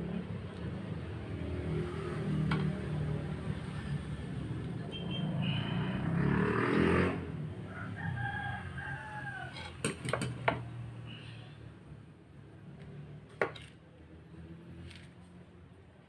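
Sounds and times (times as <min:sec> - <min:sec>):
rooster crowing: 0:07.6 - 0:09.9.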